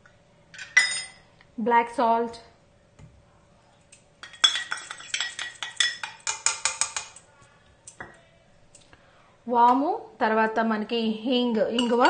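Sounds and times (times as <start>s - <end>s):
spoon clinking on metal bowls: 0.6s - 1.2s, 4.2s - 7.3s, 11.5s - 12.0s.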